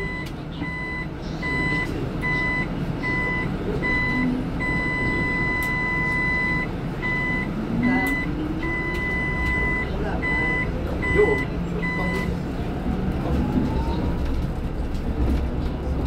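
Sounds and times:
bus warning buzzer beeping: 0.0 - 12.4
bus engine rising whine: 0.0 - 16.0
road rumble: 0.0 - 16.0.

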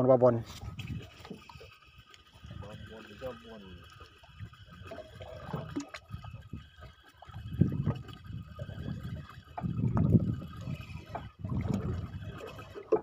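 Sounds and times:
water lapping against wooden boat: 0.0 - 13.0.

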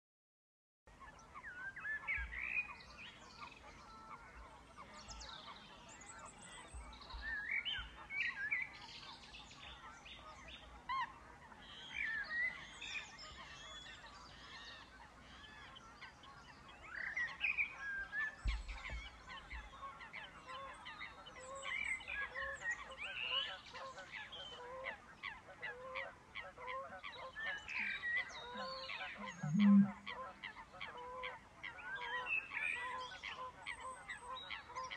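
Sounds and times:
wetland birds calling and singing: 1.0 - 34.9
low repeated notes: 29.2 - 30.1.

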